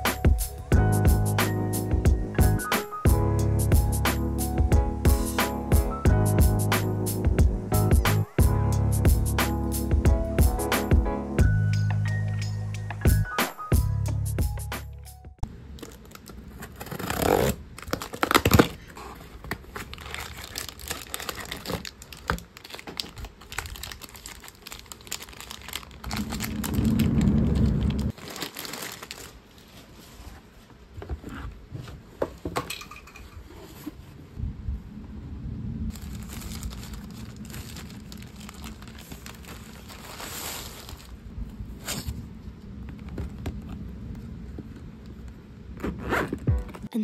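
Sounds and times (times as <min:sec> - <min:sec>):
plastic wrappers crinkling: 0:15.7 - 0:30.0, 0:35.9 - 0:41.3
box cutter slitting tape: 0:16.6 - 0:18.8.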